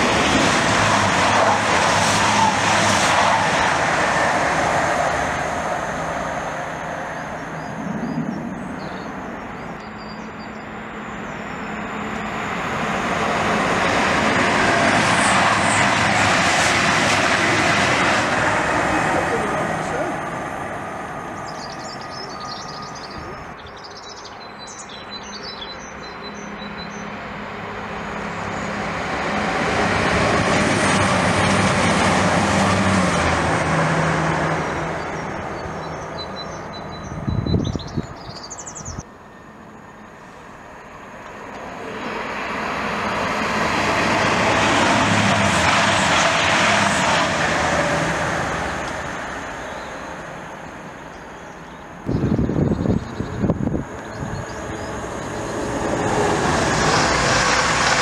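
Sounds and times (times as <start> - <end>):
passing vehicle rumble: 0.0 - 23.8, 24.4 - 58.0
birds chirping: 7.1 - 12.1, 21.2 - 27.2, 34.7 - 39.1, 49.4 - 56.0.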